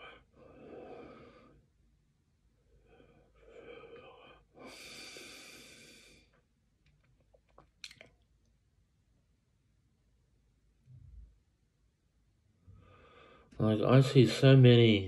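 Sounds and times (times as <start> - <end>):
man breathing: 0.0 - 1.8, 2.6 - 6.4, 12.6 - 13.6.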